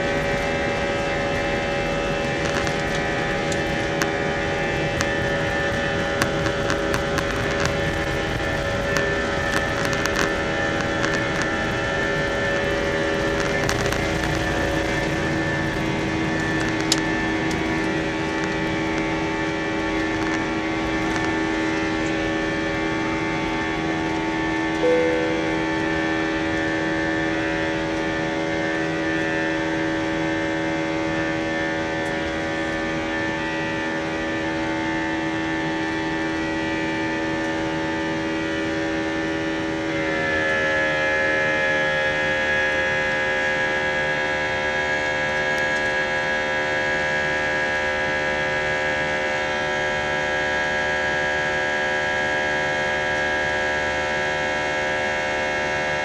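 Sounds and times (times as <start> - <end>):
rushing drone: 0.0 - 29.1
jet engine whine: 0.0 - 56.0.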